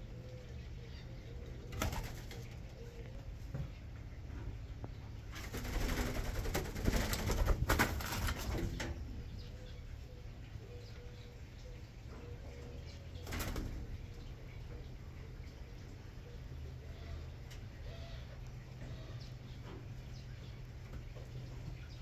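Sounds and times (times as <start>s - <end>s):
doves cooing: 0.0s - 22.0s
wings flapping and scuffling: 1.7s - 3.1s, 5.2s - 9.0s, 13.2s - 13.9s.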